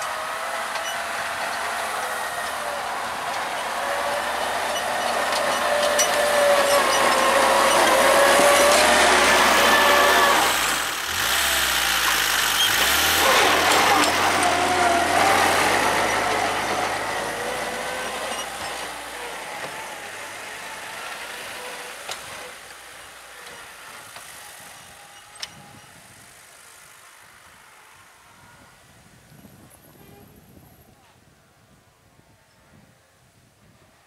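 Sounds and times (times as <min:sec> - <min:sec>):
tractor engine running: 0:00.0 - 0:28.0.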